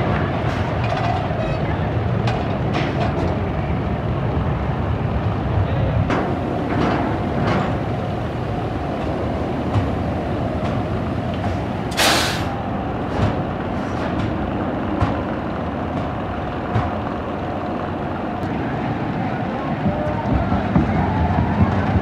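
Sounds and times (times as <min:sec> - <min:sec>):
roller coaster rumbling on track: 0:00.0 - 0:22.0
sharp hiss of air: 0:11.9 - 0:12.6.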